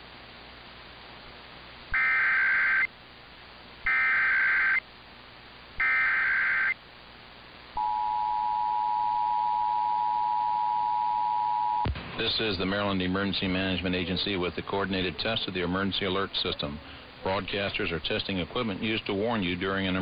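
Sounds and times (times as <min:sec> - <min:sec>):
faint radio hiss: 0:00.0 - 0:20.0
warbling data tones: 0:01.9 - 0:02.9, 0:03.9 - 0:04.8, 0:05.8 - 0:06.8
two-tone attention signal: 0:07.8 - 0:11.8.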